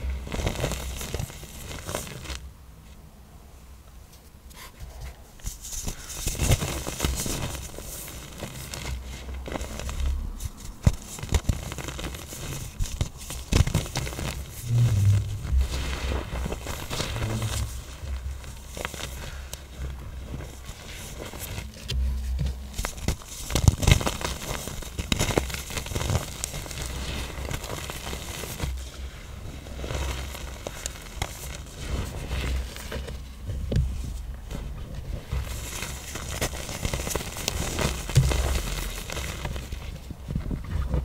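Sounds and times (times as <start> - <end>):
soft low thuds: 14.6 - 18.3.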